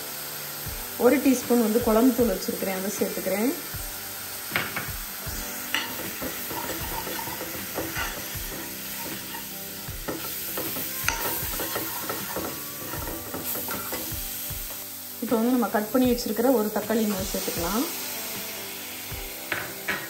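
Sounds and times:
oil sizzling: 0:00.0 - 0:20.0
spoon scraping a pan: 0:05.6 - 0:14.4.

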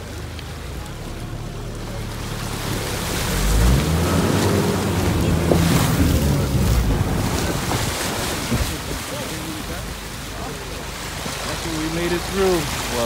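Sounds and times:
car engine running: 0:00.0 - 0:13.0
water churning and splashing: 0:00.0 - 0:13.0.

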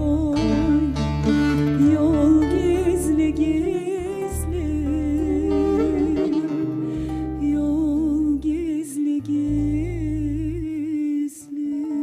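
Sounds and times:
instrumental accompaniment: 0:00.0 - 0:08.6
woman singing into microphone: 0:00.0 - 0:12.0.

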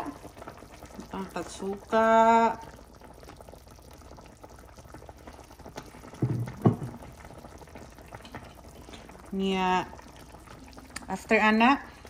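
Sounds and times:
broth bubbling: 0:00.0 - 0:12.0
vinegar pouring into pan: 0:00.0 - 0:12.0
dull knocks: 0:06.2 - 0:07.0.

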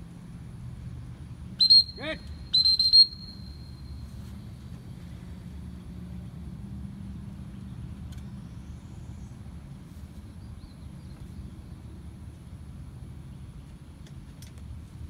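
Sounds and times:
high whistle blasts: 0:01.6 - 0:04.2.

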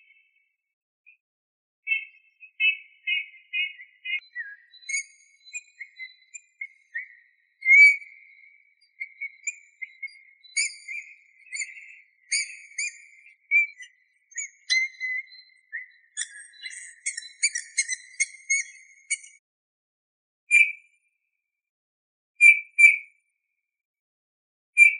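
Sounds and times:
bird whistling soft notes: 0:01.9 - 0:19.4.

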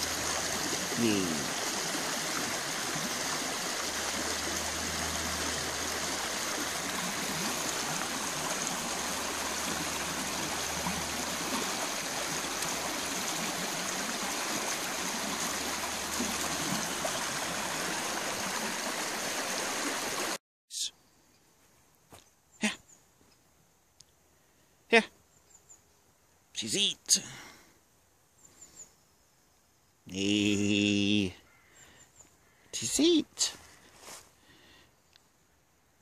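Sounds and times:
stream flowing over stones: 0:00.0 - 0:20.4.

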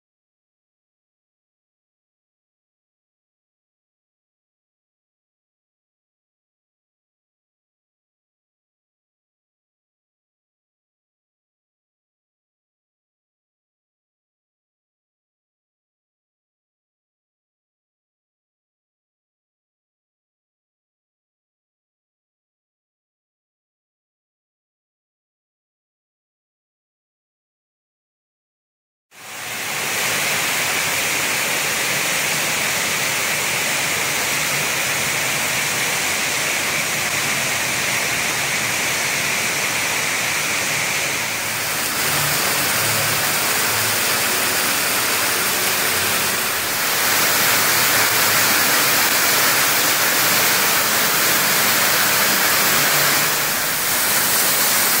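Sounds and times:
rushing waterfall: 0:29.2 - 0:55.0.

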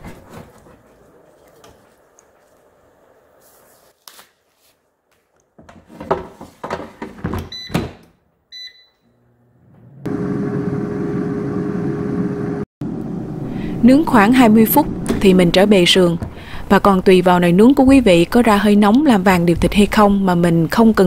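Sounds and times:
control panel beeps: 0:08.5 - 0:09.0
air fryer fan humming: 0:08.6 - 0:16.4.

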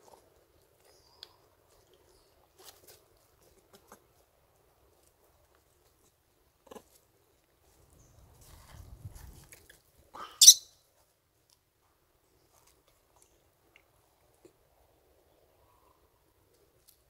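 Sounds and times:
soft movement noise: 0:07.0 - 0:10.0
monkey squealing: 0:10.4 - 0:10.6.

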